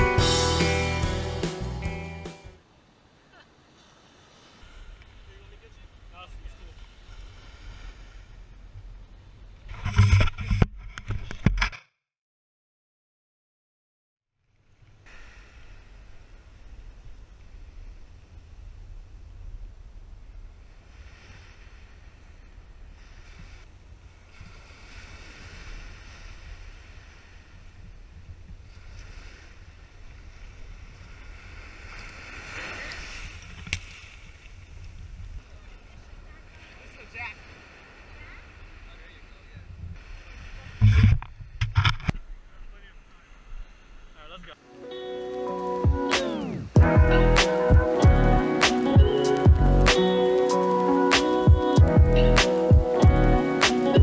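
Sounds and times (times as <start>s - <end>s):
surf washing up sand: 2.7s - 8.8s, 14.8s - 54.0s
wind rumble on microphone: 14.8s - 42.6s
camera handling knocks and rubbing: 40.8s - 42.2s.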